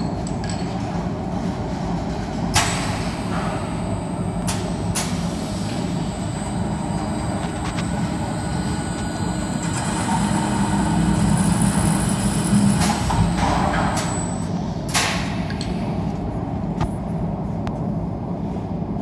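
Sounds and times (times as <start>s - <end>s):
electric motor machine running: 5.8s - 14.4s.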